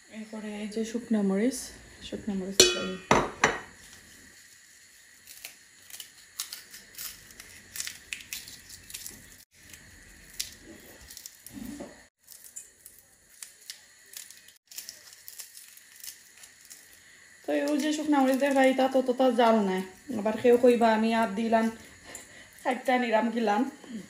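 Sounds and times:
dried chillies crackling: 3.8s - 21.8s, 22.4s - 23.8s.

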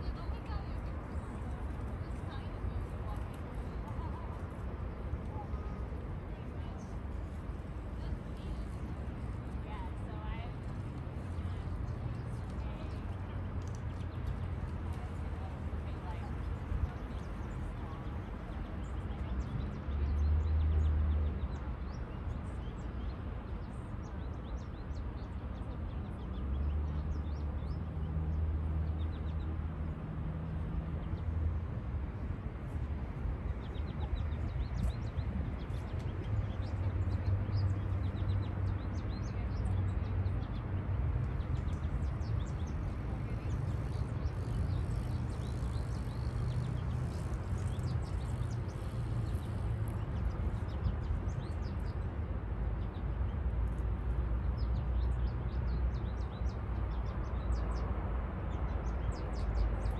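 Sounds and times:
small birds chirping: 32.8s - 52.1s.

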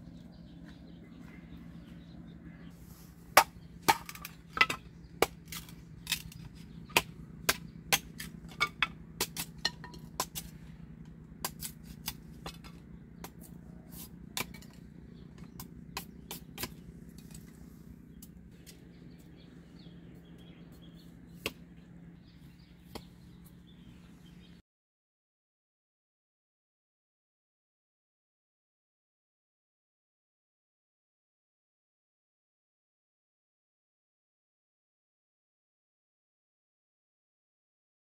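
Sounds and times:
blade chopping wood: 3.3s - 10.6s, 11.4s - 14.8s, 15.4s - 17.6s, 22.9s - 23.2s.

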